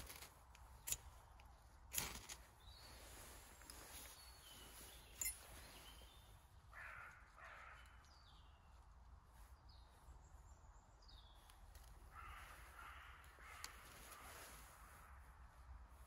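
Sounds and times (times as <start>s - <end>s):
small bird chirping: 2.2s - 14.2s
faint crows cawing: 5.5s - 8.9s, 11.7s - 16.0s.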